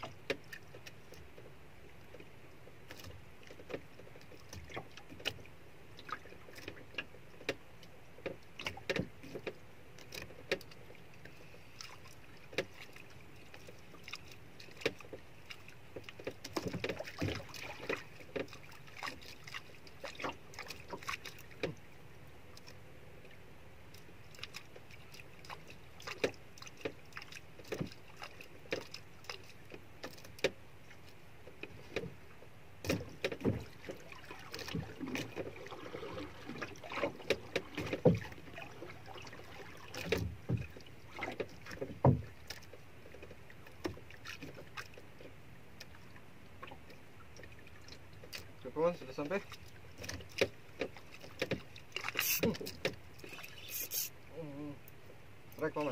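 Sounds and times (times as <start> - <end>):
water lapping against boat hull: 0.0 - 55.9
small splashes: 11.7 - 21.8, 24.3 - 31.0, 32.8 - 54.2.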